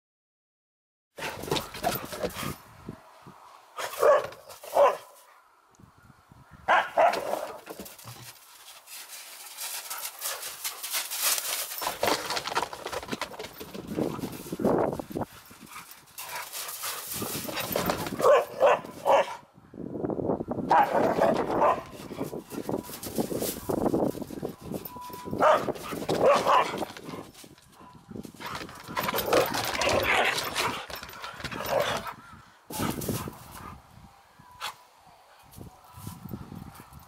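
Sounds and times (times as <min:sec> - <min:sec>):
dogs barking and yipping: 0:01.2 - 0:02.6, 0:03.8 - 0:05.3, 0:06.7 - 0:08.2, 0:09.4 - 0:19.4, 0:20.7 - 0:33.8
rustling: 0:07.2 - 0:19.0.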